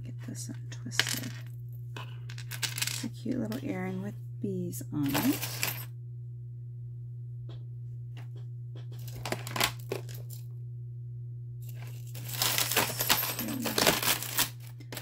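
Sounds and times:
steady low hum: 0:00.0 - 0:15.0
metal jewelry clinking: 0:11.6 - 0:15.0.

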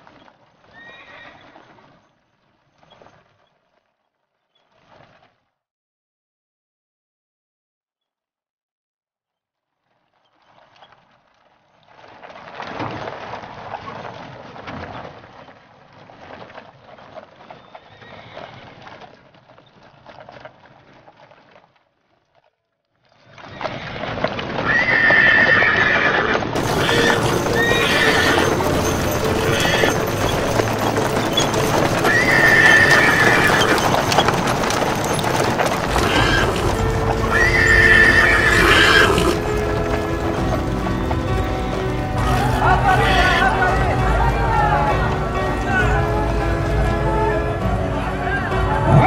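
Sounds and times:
horse whinnies: 0:00.6 - 0:01.7, 0:17.8 - 0:19.0, 0:23.3 - 0:43.7
horse hoofbeats on dirt: 0:10.2 - 0:47.7.

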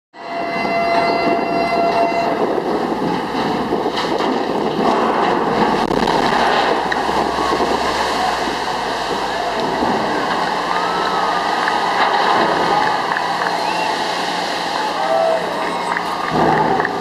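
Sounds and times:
horn long blast: 0:00.2 - 0:02.5
ship hull sliding rushing noise: 0:00.4 - 0:17.0
splash of spray: 0:05.6 - 0:17.0.

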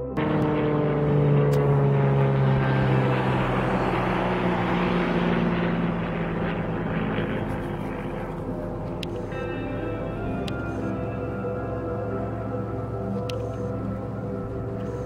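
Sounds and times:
propeller plane droning overhead: 0:00.0 - 0:15.0.

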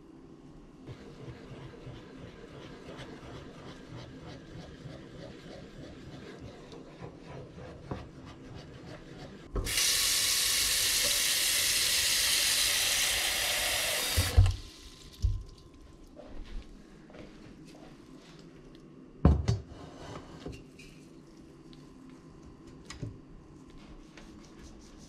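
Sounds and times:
faucet running into metal pot: 0:09.6 - 0:15.2.

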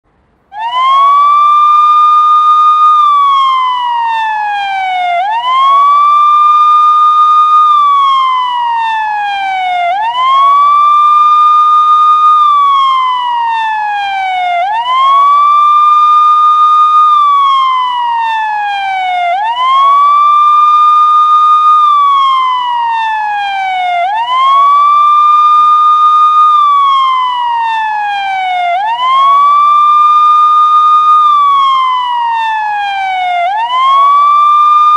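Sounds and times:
police siren wailing: 0:00.5 - 0:34.9.

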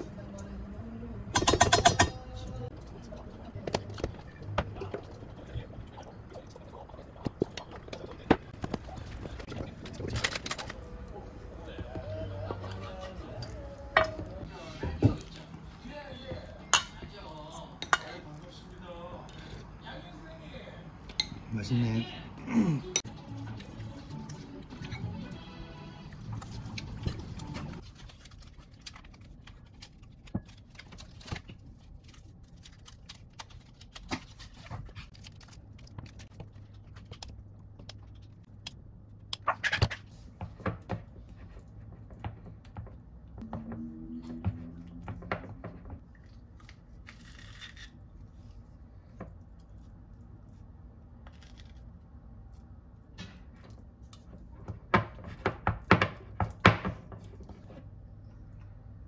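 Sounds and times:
low hum: 0:43.2 - 0:46.8.

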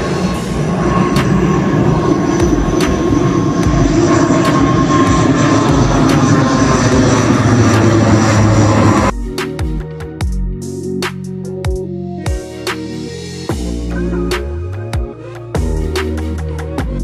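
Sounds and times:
music: 0:00.0 - 0:17.0
turboprop airliner drone overhead: 0:00.0 - 0:17.0
held tone: 0:13.7 - 0:15.1.

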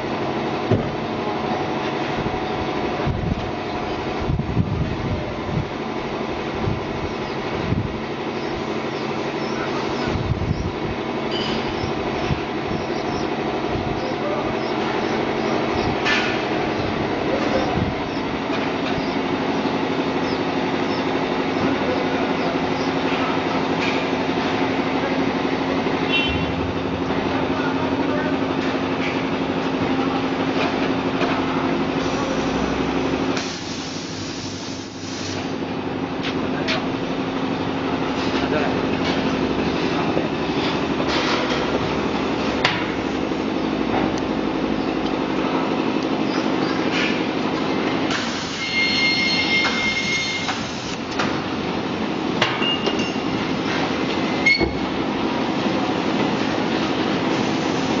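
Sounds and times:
fryer machine hum: 0:00.0 - 0:58.0
sharp metal clanks: 0:11.3 - 0:11.8
high metallic squeal: 0:48.6 - 0:50.6.

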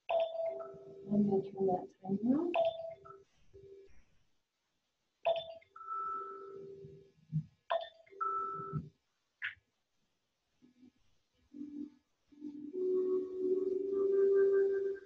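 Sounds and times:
phone alarm chime: 0:02.6 - 0:03.2.

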